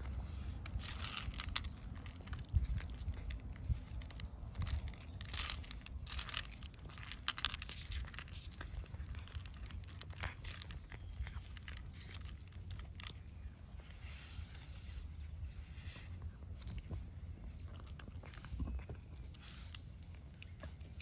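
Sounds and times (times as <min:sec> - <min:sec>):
low steady rumble: 0:00.0 - 0:21.0
cat chewing food: 0:00.7 - 0:13.6.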